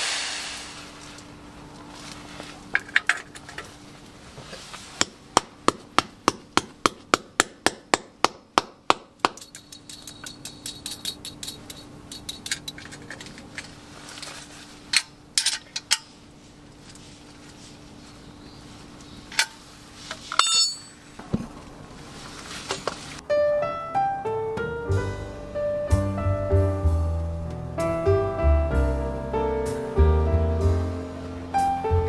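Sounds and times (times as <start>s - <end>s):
hammer striking metal pin: 5.0s - 12.8s, 20.3s - 21.0s.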